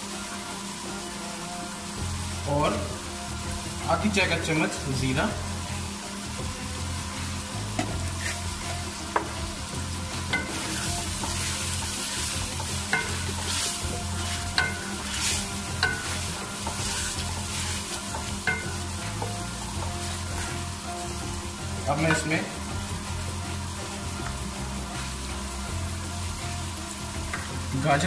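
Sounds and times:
vegetables sizzling in oil: 0.0 - 28.0
wooden spoon stirring: 10.1 - 23.7
spoon knocking against metal pot: 18.2 - 20.0.

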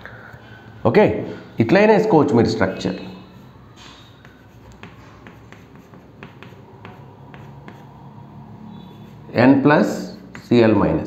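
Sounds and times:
chalk tapping and scratching: 2.9 - 8.1, 8.7 - 11.0.

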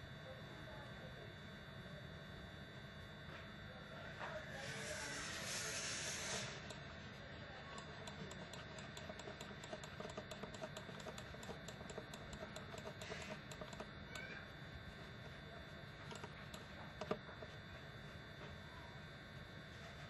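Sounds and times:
rapid light computer clicking: 6.4 - 14.4, 15.2 - 17.7.

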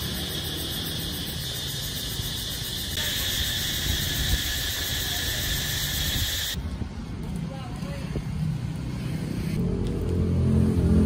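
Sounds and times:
insect chorus shrilling: 0.0 - 6.6.

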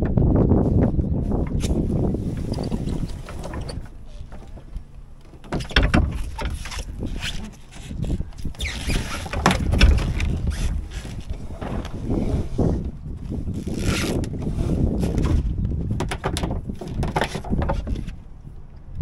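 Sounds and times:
wind rumbling on microphone: 0.0 - 19.0
water rushing against hull: 1.2 - 19.0
gear knocking and clattering: 2.3 - 12.0.

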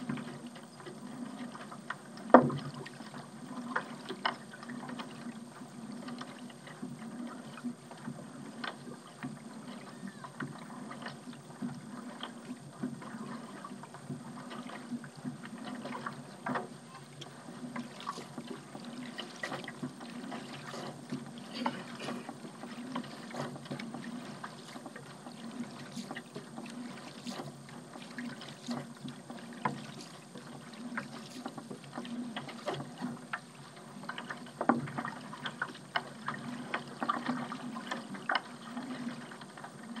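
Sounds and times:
paddle pulling through water: 0.0 - 40.0
small splashes and drips: 14.5 - 40.0.

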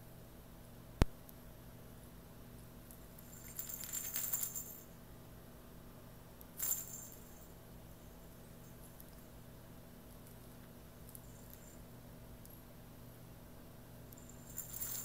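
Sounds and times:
small metal jingling: 3.2 - 5.0, 6.6 - 9.4, 11.0 - 11.9, 14.1 - 15.0.

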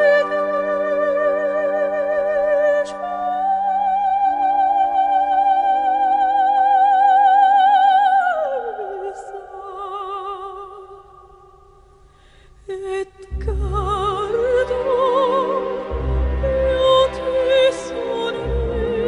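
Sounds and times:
operatic soprano singing: 0.0 - 11.6, 12.6 - 19.0
orchestral accompaniment: 13.3 - 19.0.

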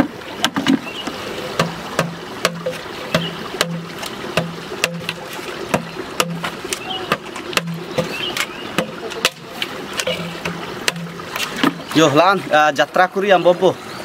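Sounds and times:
machete chopping bamboo: 1.6 - 11.8.

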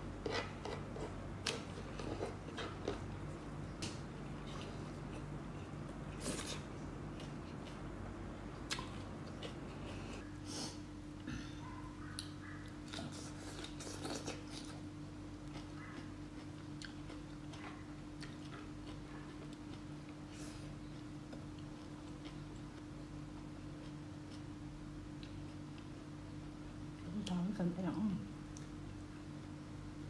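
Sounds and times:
steady low hum: 0.0 - 30.0
person chewing and lip smacking: 0.2 - 7.9, 8.5 - 10.2, 11.7 - 24.5, 25.1 - 26.4.

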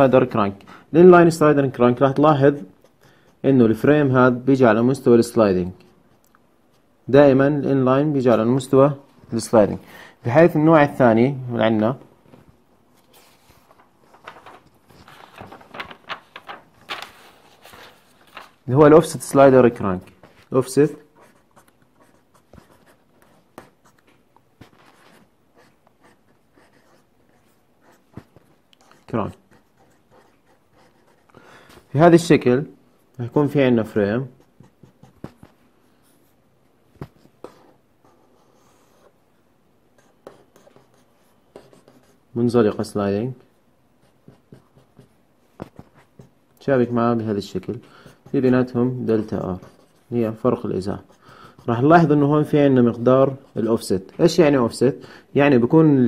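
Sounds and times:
paper rustling and sliding: 12.3 - 18.8
pen scratching on paper: 20.9 - 31.3, 34.2 - 36.4, 37.0 - 39.2, 40.0 - 42.9, 44.0 - 46.4, 48.0 - 53.9.

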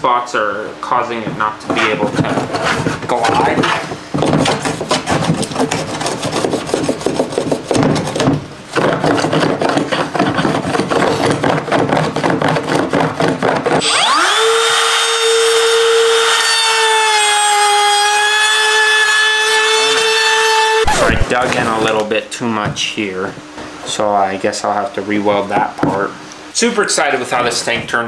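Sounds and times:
hand plane scraping plastic: 1.7 - 13.9
trim router whining: 13.8 - 22.0.

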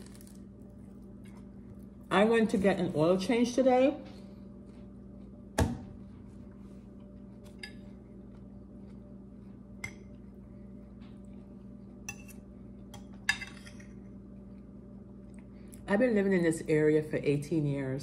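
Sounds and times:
low hum: 0.0 - 18.0
utensils clinking on dishes: 13.0 - 14.0.

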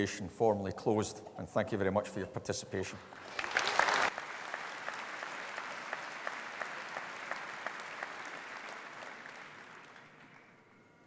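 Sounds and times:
audience applauding: 3.1 - 10.8
nearby hands clapping steadily: 3.3 - 10.3.

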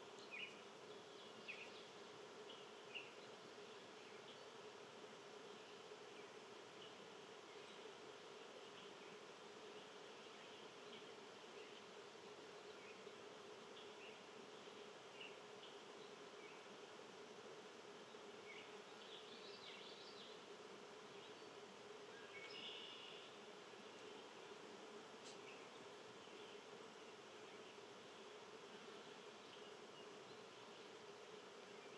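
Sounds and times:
low buzzing hum: 0.0 - 31.9
faint bird chirps: 21.2 - 24.3.

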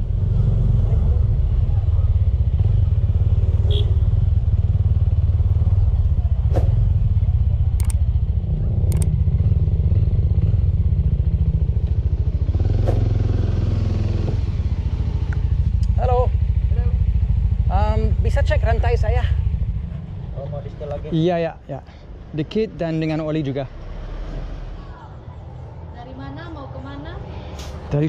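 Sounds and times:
motorcycle engine running: 0.0 - 21.1.

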